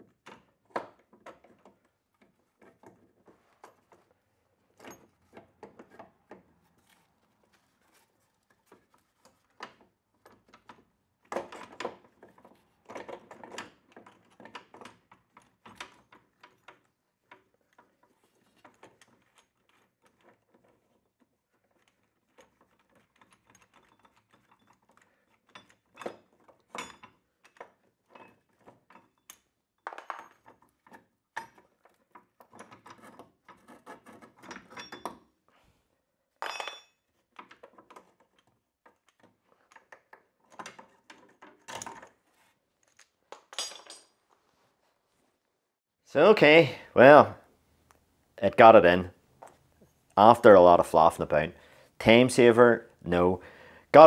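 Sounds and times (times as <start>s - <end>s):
metal tools clinking and scraping: 32.7s - 35.2s, 36.4s - 37.1s, 42.8s - 44.2s.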